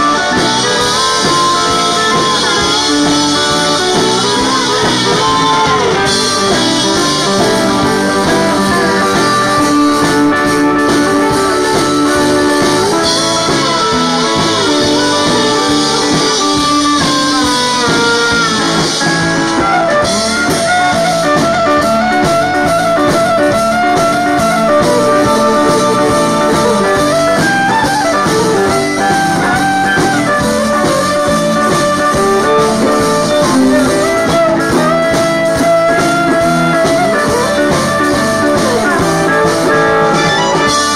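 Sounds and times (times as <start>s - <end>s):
fiddle: 0.0s - 40.9s
steel guitar: 0.0s - 40.9s
button accordion: 38.0s - 40.9s.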